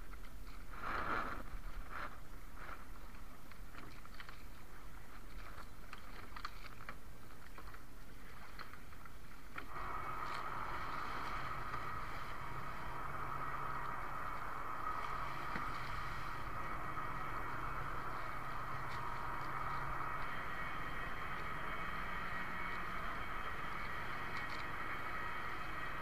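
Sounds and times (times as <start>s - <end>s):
steady mechanical hum: 0.0s - 26.0s
water around canoe: 0.0s - 26.0s
wind: 0.0s - 26.0s.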